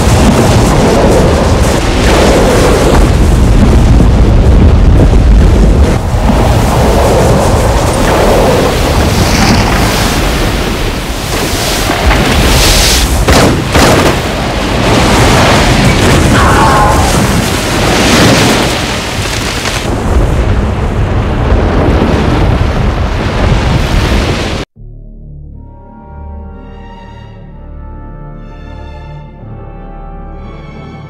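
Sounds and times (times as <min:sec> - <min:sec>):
sharp cracks and impacts: 0:00.0 - 0:16.4, 0:17.0 - 0:20.4
rumble of sliding snow and ice: 0:00.0 - 0:24.7.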